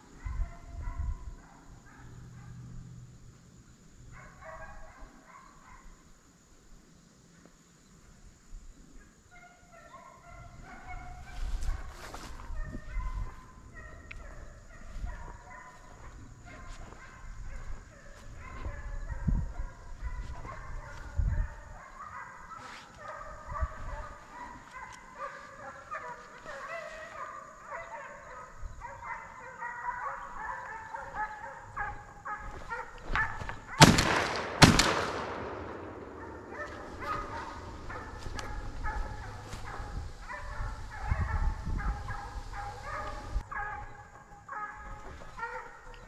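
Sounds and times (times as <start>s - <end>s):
hounds baying: 4.0s - 6.0s, 9.0s - 33.9s, 34.8s - 46.0s
loud shotgun shots: 33.8s - 37.0s.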